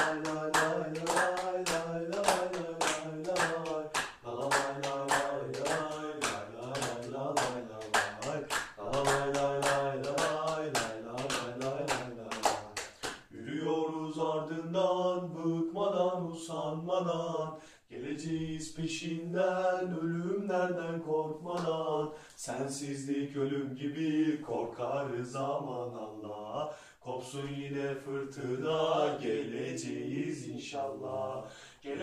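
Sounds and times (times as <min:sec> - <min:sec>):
hand-clapping: 0:00.0 - 0:13.3, 0:21.5 - 0:22.4
men singing a terrace chant: 0:00.0 - 0:32.0.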